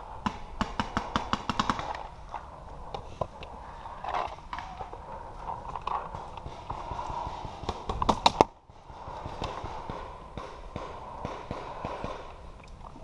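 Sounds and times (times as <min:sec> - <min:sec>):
loud paintball cracks: 0:00.2 - 0:02.1, 0:05.9 - 0:08.6.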